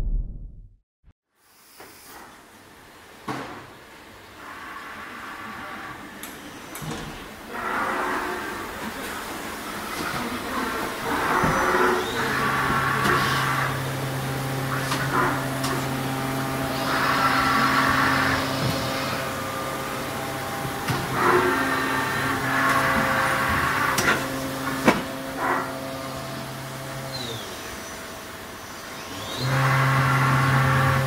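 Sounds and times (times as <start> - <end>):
machine humming: 7.6 - 31.0.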